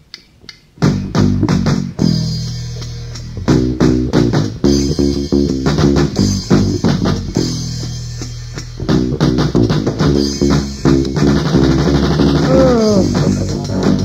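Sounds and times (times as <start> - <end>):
drum kit: 0.0 - 14.0
bass guitar: 0.8 - 14.0
electric guitar: 8.7 - 14.0.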